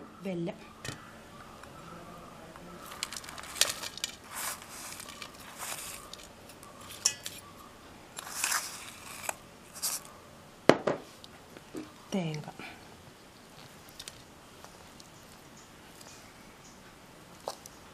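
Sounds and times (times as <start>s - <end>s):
spoon scraping steel bowl: 3.0s - 7.5s, 8.2s - 10.1s.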